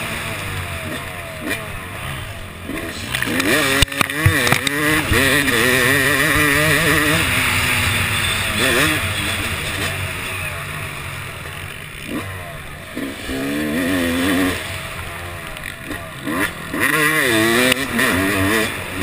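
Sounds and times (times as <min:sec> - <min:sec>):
motocross bike engine revving: 0:00.0 - 0:19.0.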